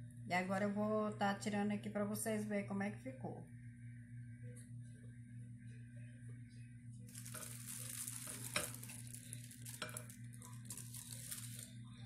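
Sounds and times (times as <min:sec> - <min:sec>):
aluminium foil crinkling: 0:07.1 - 0:11.8.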